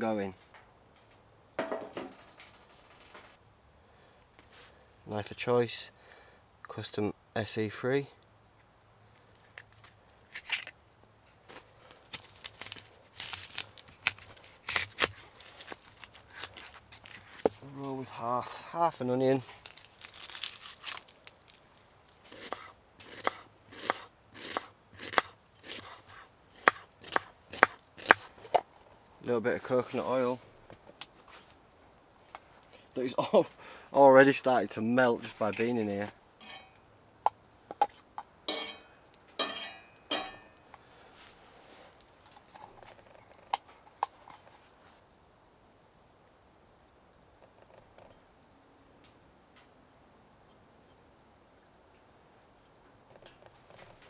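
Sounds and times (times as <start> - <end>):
knife slicing onion: 22.3 - 28.3
utensil scraping cast iron skillet: 36.4 - 36.8, 37.8 - 40.6.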